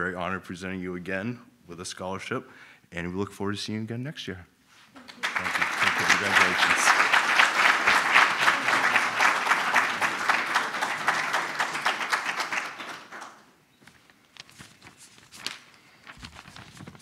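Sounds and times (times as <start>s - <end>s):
audience applauding: 5.0s - 13.5s.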